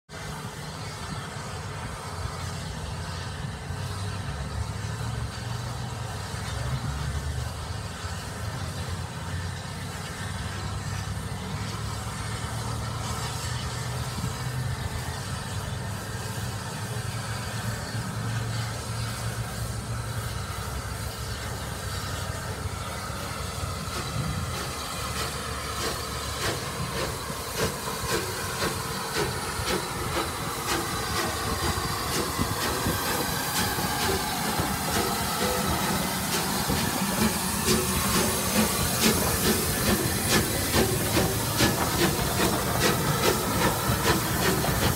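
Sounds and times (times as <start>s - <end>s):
steam hissing: 0.1s - 44.9s
locomotive exhaust beats: 0.2s - 44.9s.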